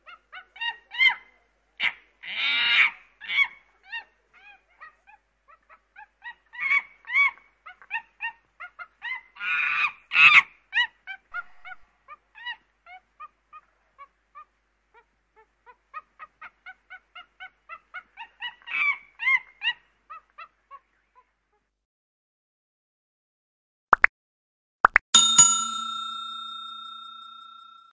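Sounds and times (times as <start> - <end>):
chimpanzee calling and screaming: 0.0 - 21.3.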